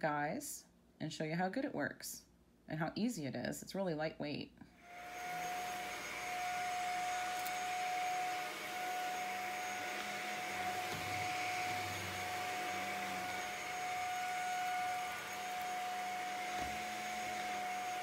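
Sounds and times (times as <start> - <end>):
stick vacuum running: 4.9 - 18.0.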